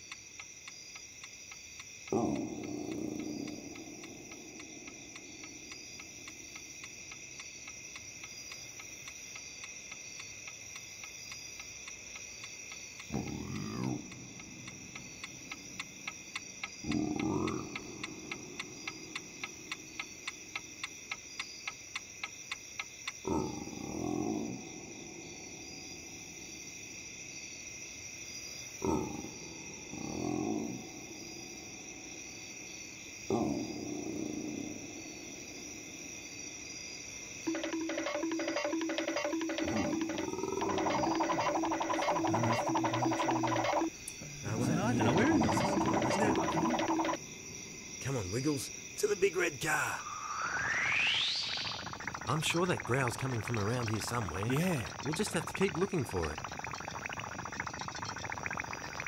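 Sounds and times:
clock ticking quickly: 0:00.0 - 0:23.2, 0:37.5 - 0:47.2, 0:51.8 - 0:58.2
crickets chirping: 0:00.0 - 0:59.0
stomach rumbling growl: 0:02.1 - 0:05.3, 0:13.0 - 0:14.8, 0:16.8 - 0:19.7, 0:23.2 - 0:25.5, 0:28.8 - 0:31.1, 0:33.3 - 0:35.2, 0:39.2 - 0:47.2, 0:50.5 - 0:59.0.

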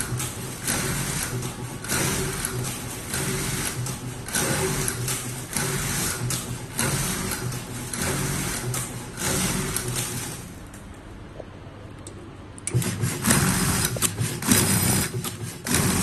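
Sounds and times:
machine motor whir: 0:00.0 - 0:10.8, 0:12.6 - 0:16.0
shear cutting: 0:12.7 - 0:16.0.

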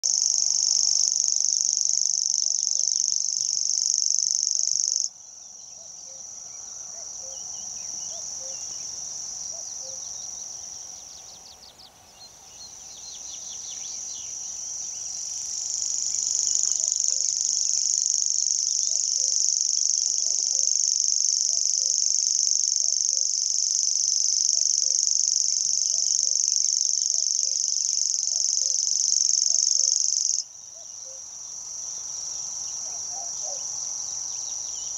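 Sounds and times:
bird reeling trill: 0:00.1 - 0:05.1, 0:24.3 - 0:31.2.

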